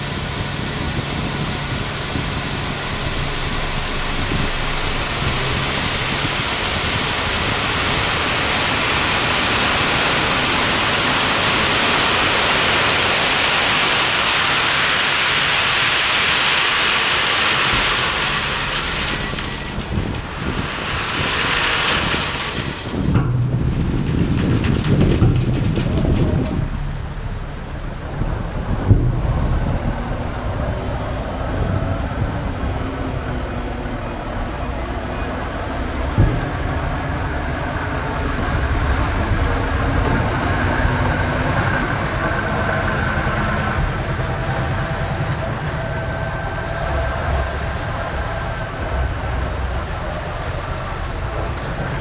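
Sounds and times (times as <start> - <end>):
truck engine running: 0.0 - 52.0
crushed rock pouring: 1.1 - 27.0.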